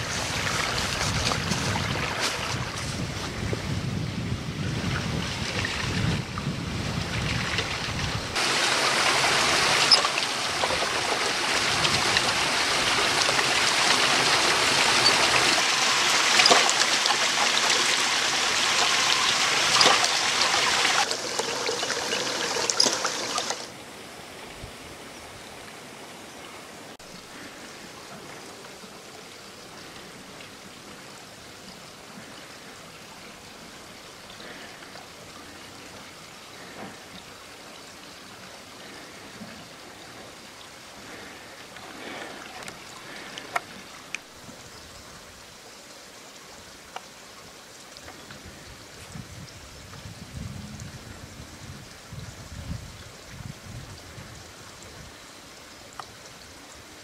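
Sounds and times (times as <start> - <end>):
water pouring from spout: 7.3 - 23.7.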